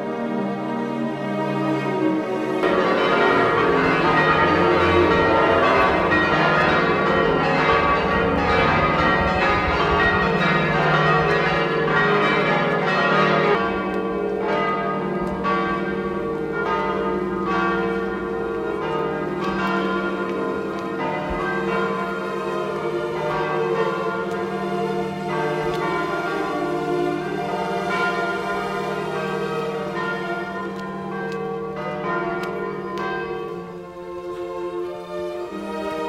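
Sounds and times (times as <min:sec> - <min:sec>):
church bells pealing: 0:00.0 - 0:36.0.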